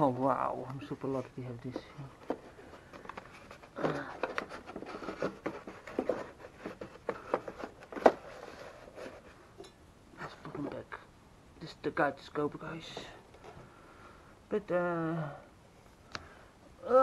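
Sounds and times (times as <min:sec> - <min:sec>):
scraping and rustling: 0:00.0 - 0:09.6.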